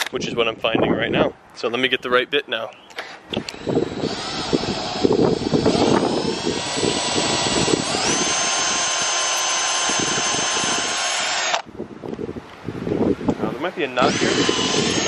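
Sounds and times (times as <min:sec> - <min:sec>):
drill bit cutting wood: 0:03.4 - 0:11.7, 0:14.0 - 0:15.0
drill motor whine: 0:03.4 - 0:11.7, 0:14.0 - 0:15.0.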